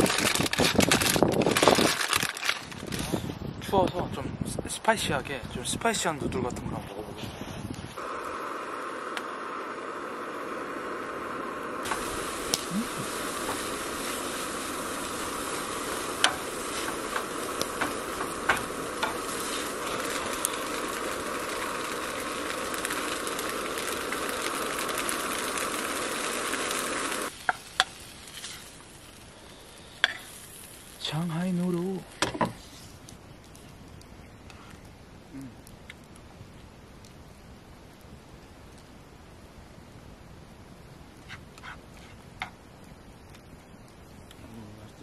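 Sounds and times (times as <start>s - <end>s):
camp stove hissing: 7.2s - 33.7s
noodles sizzling in a pan: 8.0s - 32.9s.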